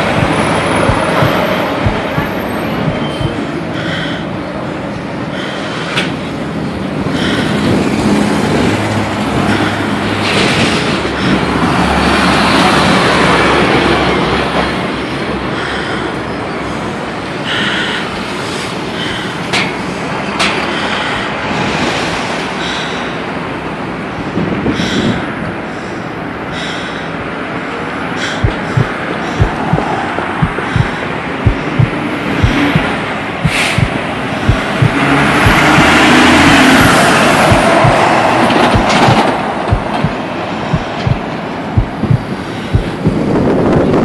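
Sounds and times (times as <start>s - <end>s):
sharp clicks: 0.0s - 3.4s, 28.2s - 43.3s
traffic rumble and hiss: 0.0s - 44.0s.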